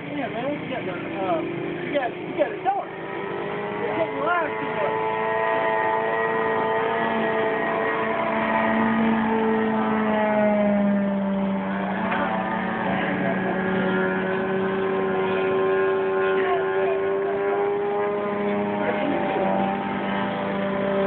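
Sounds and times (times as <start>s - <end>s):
model airplane motor running: 2.4s - 12.2s.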